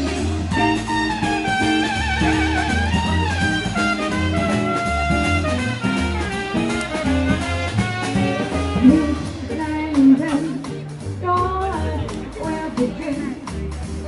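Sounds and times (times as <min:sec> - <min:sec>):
live jazz band playing swing: 0:00.0 - 0:14.0
upright bass line: 0:00.0 - 0:14.0
wavering melody line: 0:08.2 - 0:09.5.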